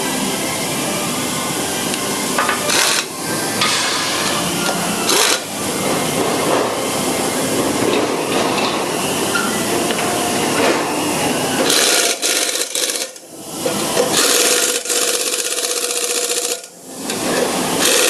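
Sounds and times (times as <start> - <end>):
workshop noise: 0.0 - 18.0
pneumatic impact wrench bursts: 2.4 - 5.5, 11.6 - 18.0.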